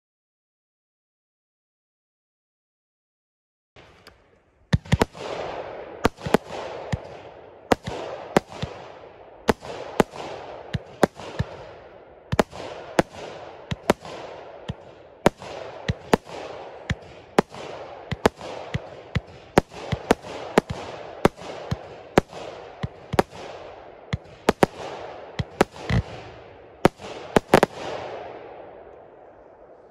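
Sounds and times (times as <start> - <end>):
firework cake firing sharp shots: 4.7 - 28.9
firework crackling: 4.8 - 28.3.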